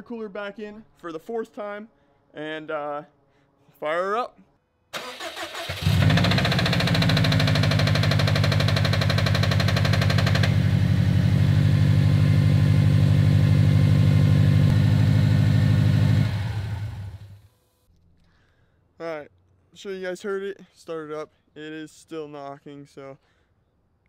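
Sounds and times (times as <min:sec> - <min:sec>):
car engine cranking and idling: 0:05.0 - 0:17.4
engine knock: 0:05.9 - 0:11.0.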